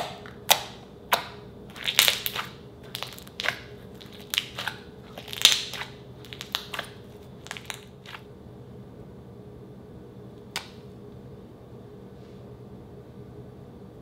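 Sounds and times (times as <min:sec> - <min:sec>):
slime popping and crackling: 0:00.0 - 0:08.3.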